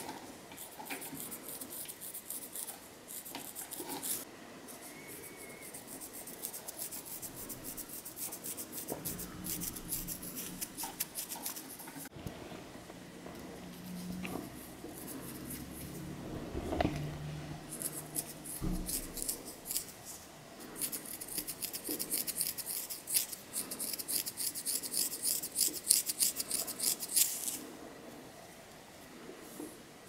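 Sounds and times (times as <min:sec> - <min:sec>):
fingernails scratching scalp: 0:00.6 - 0:12.1, 0:13.7 - 0:16.0, 0:17.7 - 0:20.0, 0:20.8 - 0:27.6.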